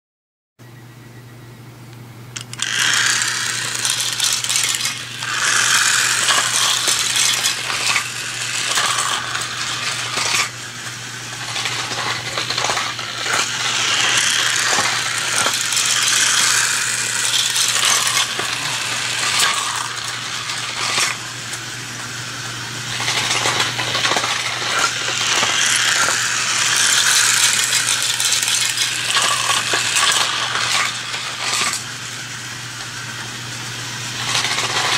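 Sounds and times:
toy car clattering on plastic track: 0:02.4 - 0:22.2, 0:22.9 - 0:34.9.

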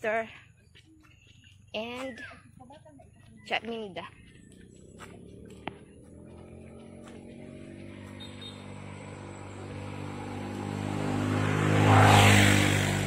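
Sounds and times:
vehicle engine approaching: 0:03.0 - 0:13.0.

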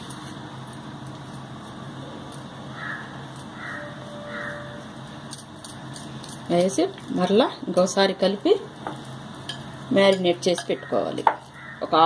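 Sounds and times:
bird calling: 0:02.7 - 0:04.8, 0:10.8 - 0:12.0.

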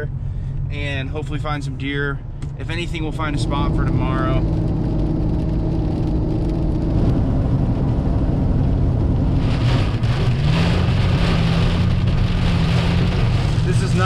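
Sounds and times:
truck engine and tyre drone: 0:00.0 - 0:14.0
rain drumming on windshield: 0:03.5 - 0:14.0.

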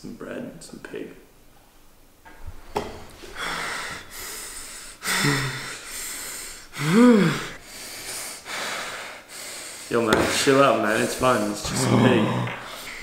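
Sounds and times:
man breathing hard: 0:03.2 - 0:11.5
man groaning loudly: 0:06.8 - 0:07.6, 0:11.4 - 0:12.7
man grunting: 0:06.8 - 0:07.6, 0:11.3 - 0:12.7.

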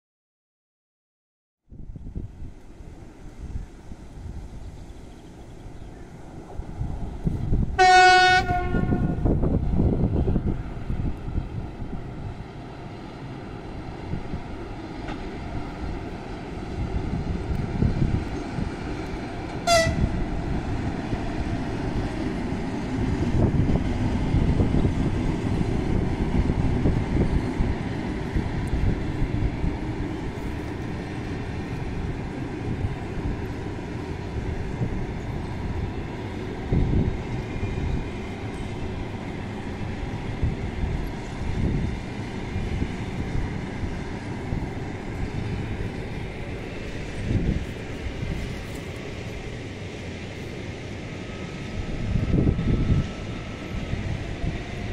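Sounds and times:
train wheels rumbling on rail: 0:01.8 - 0:54.9
high-pitched train toot: 0:07.8 - 0:09.4, 0:19.5 - 0:20.3.

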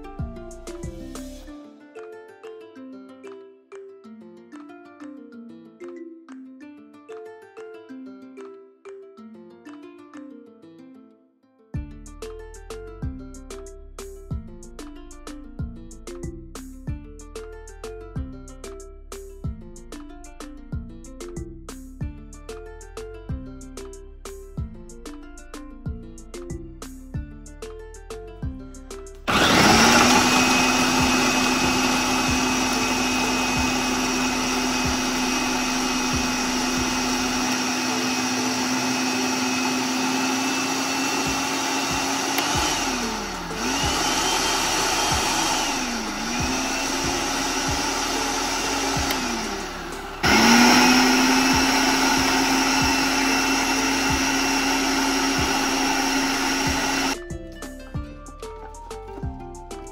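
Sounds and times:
food processor chopping onion: 0:29.3 - 0:57.2.

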